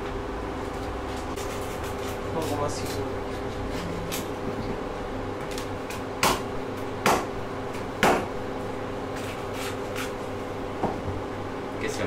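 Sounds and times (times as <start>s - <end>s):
steady low hum: 0.0s - 12.0s
knife chopping on cutting board: 6.2s - 7.4s, 8.0s - 8.3s.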